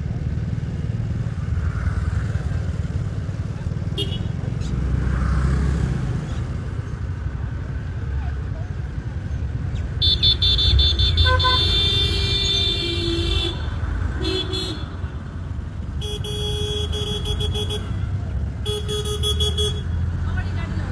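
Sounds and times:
vehicle horns honking: 4.0 - 4.4, 10.0 - 15.2, 15.9 - 20.2.

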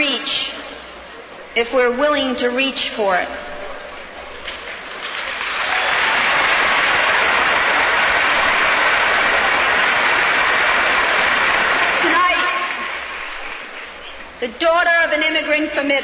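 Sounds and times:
large crowd applauding: 4.3 - 14.4.

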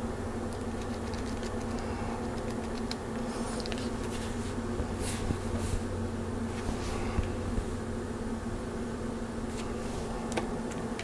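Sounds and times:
faint rustles: 6.5 - 7.7.

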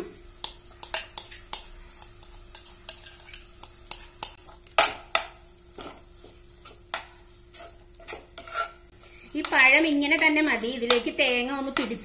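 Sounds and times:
metal spoon scraping saucepan: 7.5 - 8.9.

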